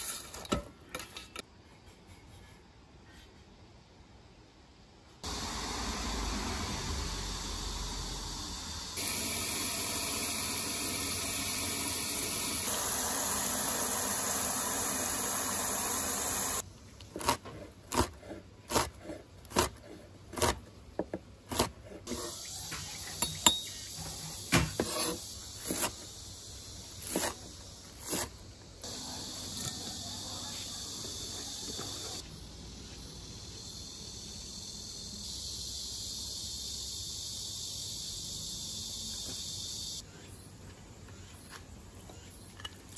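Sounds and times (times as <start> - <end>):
knife chopping on wooden board: 17.2 - 21.8.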